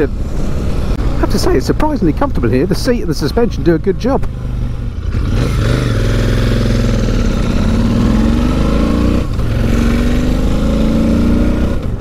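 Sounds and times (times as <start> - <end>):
motorcycle engine accelerating: 4.3 - 12.0.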